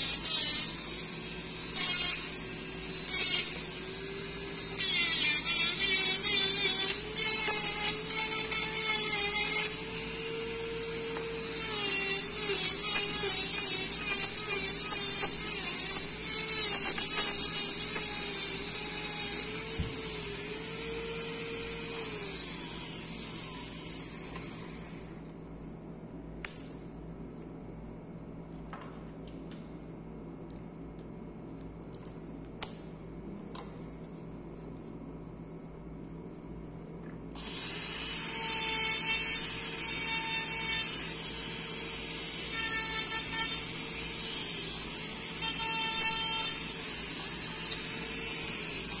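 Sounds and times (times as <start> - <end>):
dental handpiece grinding: 0.0 - 24.6, 37.4 - 49.0.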